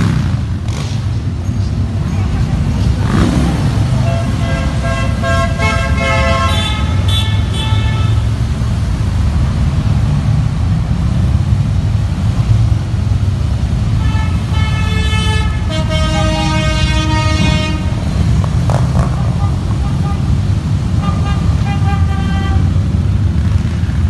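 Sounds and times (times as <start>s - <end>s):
motorcycles riding past: 0.0s - 24.0s
horns honking: 2.0s - 8.5s, 13.9s - 23.0s.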